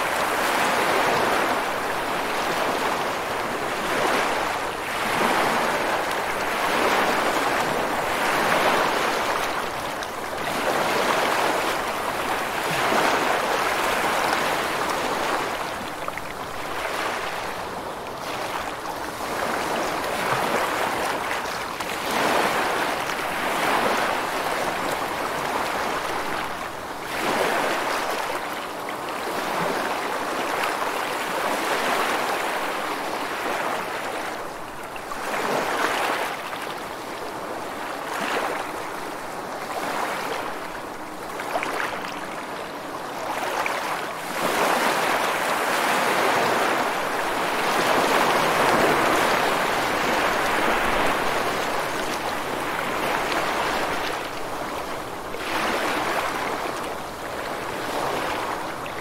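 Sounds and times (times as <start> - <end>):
ocean surf breaking: 43.5 - 58.6.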